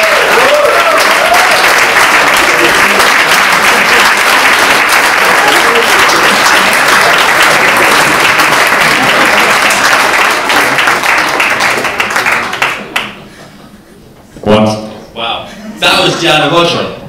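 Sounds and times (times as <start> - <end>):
audience applauding: 0.0 - 13.3.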